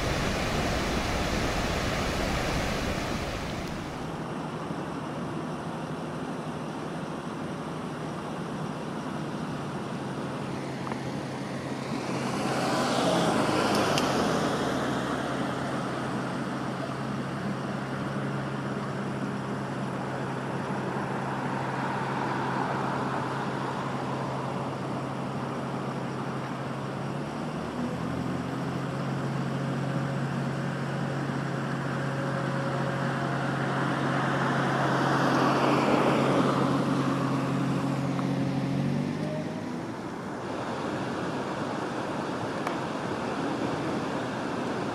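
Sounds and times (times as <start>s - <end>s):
traffic passing: 0.0s - 4.5s, 9.3s - 27.0s, 27.8s - 44.9s
crane engine running: 0.0s - 12.5s.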